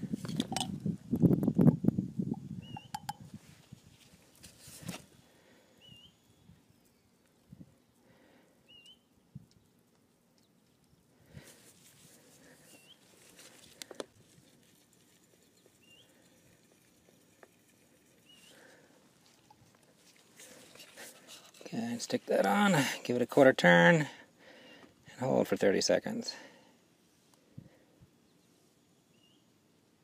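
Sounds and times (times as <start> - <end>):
bird chirping: 2.3 - 3.2, 5.7 - 7.3, 8.6 - 11.1, 12.6 - 13.1, 15.4 - 16.5, 18.0 - 18.8, 28.2 - 29.5.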